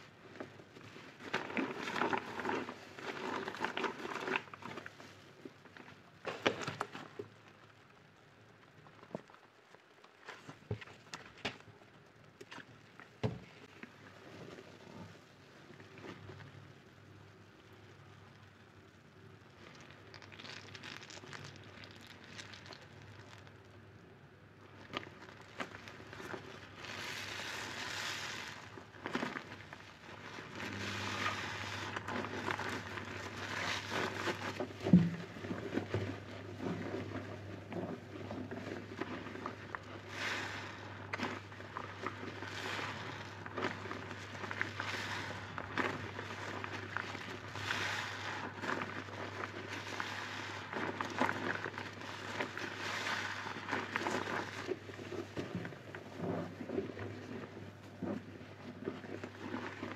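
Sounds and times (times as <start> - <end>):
sponge squelching in soapy water: 0.0 - 7.6, 19.5 - 23.7, 24.5 - 59.9.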